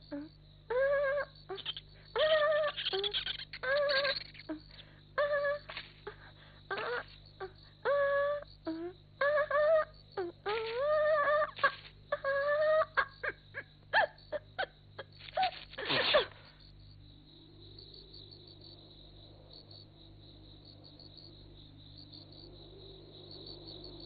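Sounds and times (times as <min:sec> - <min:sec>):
soft high insect chirping: 0:00.0 - 0:24.0.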